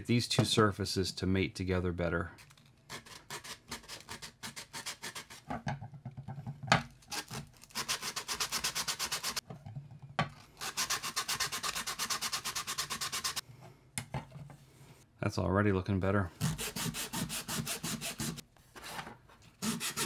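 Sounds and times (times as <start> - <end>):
sandpaper scraping plastic: 7.1 - 9.4, 10.6 - 13.4.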